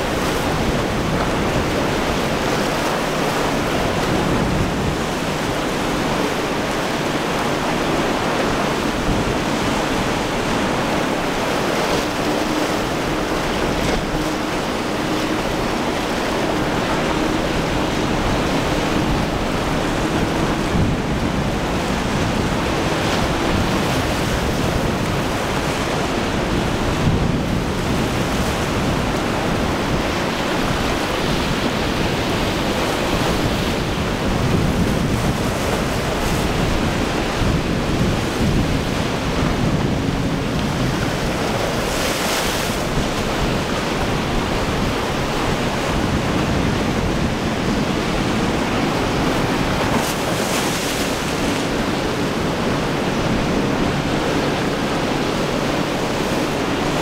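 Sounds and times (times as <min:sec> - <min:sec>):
faint boat engine drone: 0:00.0 - 0:57.0
surf and breaking waves: 0:00.0 - 0:57.0
wind buffeting microphone: 0:00.0 - 0:57.0.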